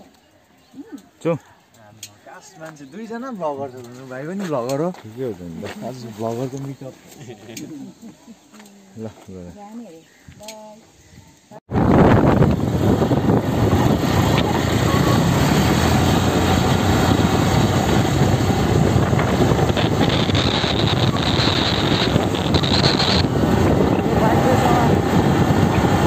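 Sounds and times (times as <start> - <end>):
wind buffeting microphone: 10.2 - 26.0
high whine: 11.7 - 26.0
motorcycle engine and road noise: 11.7 - 26.0.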